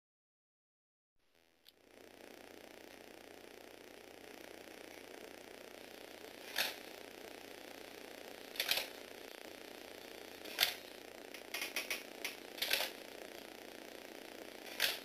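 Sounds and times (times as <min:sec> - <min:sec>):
plastic robot clicks and clacks: 0:08.6 - 0:08.9, 0:11.4 - 0:13.0.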